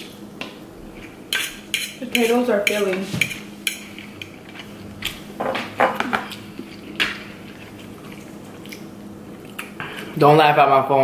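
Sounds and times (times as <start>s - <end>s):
faint steady hum: 0.0s - 11.0s
forks clinking on metal trays: 1.3s - 4.7s.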